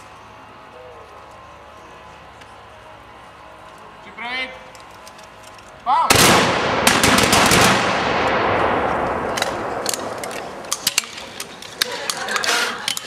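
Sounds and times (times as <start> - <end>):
gunshots with echo: 6.1 - 10.9.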